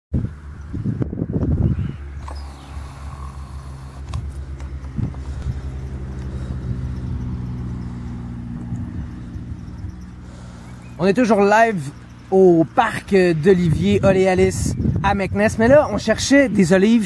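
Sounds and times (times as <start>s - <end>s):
wind on microphone: 0.2s - 10.9s, 13.0s - 16.6s
engine idling: 2.2s - 14.7s.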